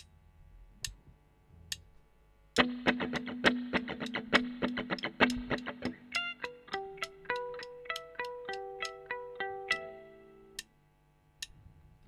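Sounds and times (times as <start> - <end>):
rock band playing: 2.6 - 7.1
drumsticks clicked together: 3.8 - 9.1.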